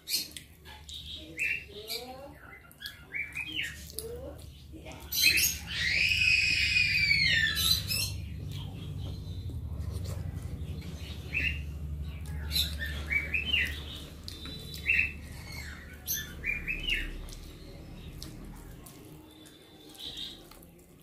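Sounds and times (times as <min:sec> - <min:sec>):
steady low hum: 0:03.8 - 0:19.7
bird squawk: 0:05.2 - 0:08.3.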